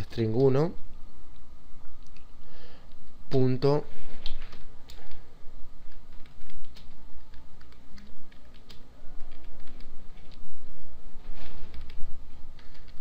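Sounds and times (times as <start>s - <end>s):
steady low hum: 0.0s - 13.0s
keyboard typing: 5.8s - 10.4s, 11.4s - 13.0s.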